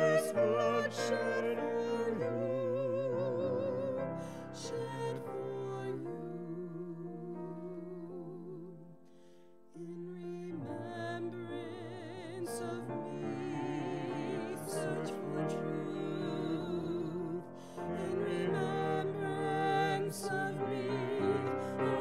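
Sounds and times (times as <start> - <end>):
woman singing with vibrato: 0.0 - 4.0
grand piano: 0.0 - 22.0.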